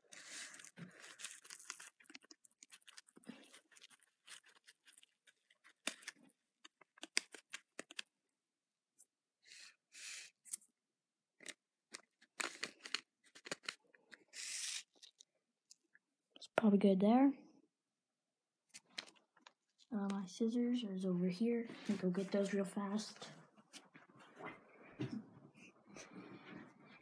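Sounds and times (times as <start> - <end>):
plastic bag crinkling: 0.4 - 6.2.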